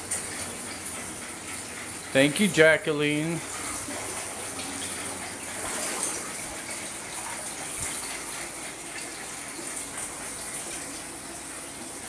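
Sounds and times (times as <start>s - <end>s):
water splashing into pool: 3.1s - 12.0s.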